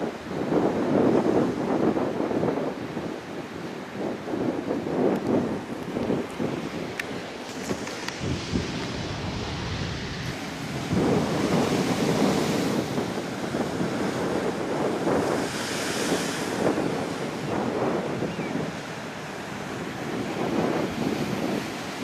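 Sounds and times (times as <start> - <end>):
ocean surf crashing on rocks: 0.0 - 22.0
wind buffeting microphone: 0.0 - 22.0
wave bursting into spray: 7.3 - 18.0.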